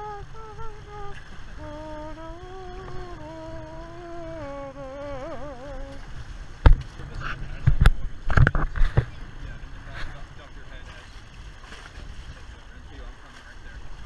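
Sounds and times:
person humming: 0.0s - 6.1s
low wind rumble: 0.0s - 14.0s.

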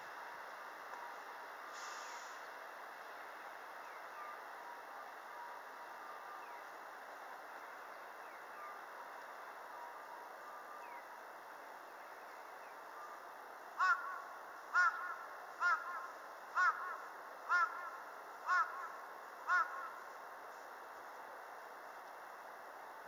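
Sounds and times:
steady background noise: 0.0s - 23.0s
crow cawing: 13.8s - 20.0s.

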